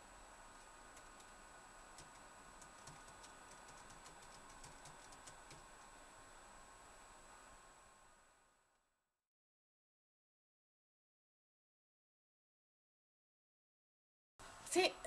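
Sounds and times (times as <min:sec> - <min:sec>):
laptop keyboard typing: 0:00.9 - 0:05.9.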